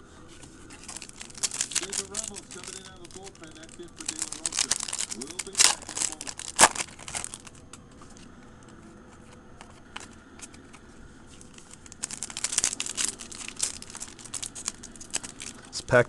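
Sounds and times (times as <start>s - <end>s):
foil wrapper crinkling and tearing: 0.8s - 7.7s, 11.4s - 15.8s.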